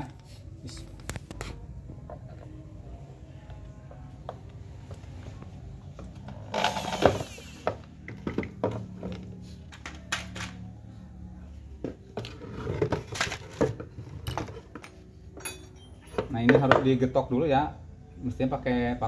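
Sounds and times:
knocks and clinks of handling: 14.2s - 16.9s.

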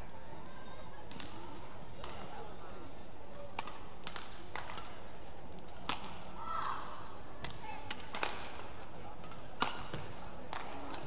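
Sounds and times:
murmur of indoor arena: 0.0s - 11.0s
rackets striking shuttlecock: 9.2s - 11.0s.

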